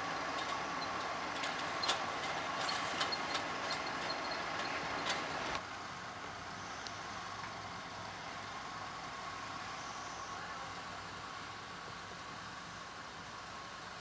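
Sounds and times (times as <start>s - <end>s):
car running noise inside cabin: 0.0s - 5.6s.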